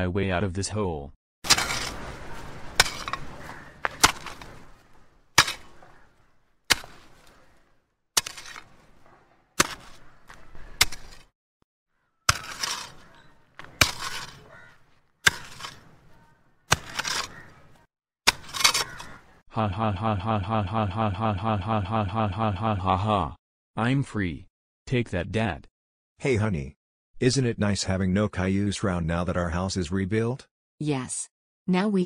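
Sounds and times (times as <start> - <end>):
cartoon shovel digging effect: 1.4 - 5.8, 8.2 - 9.0, 9.6 - 11.3, 12.3 - 16.1, 16.7 - 19.2.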